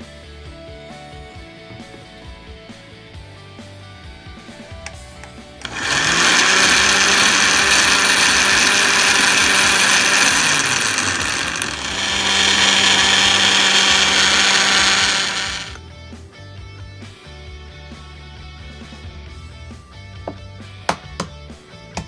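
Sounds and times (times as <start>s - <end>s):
blender motor running: 5.6s - 15.8s.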